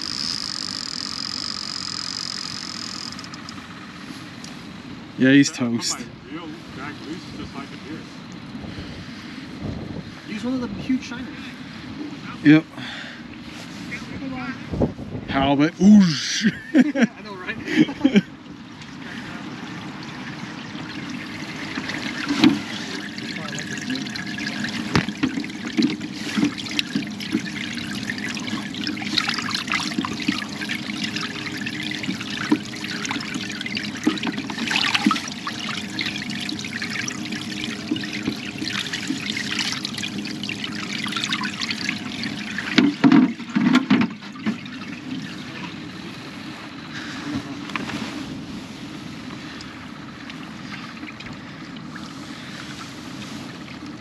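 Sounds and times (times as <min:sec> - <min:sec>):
water sloshing in cooler: 0:16.8 - 0:54.0
knocks and splashes: 0:18.8 - 0:45.8.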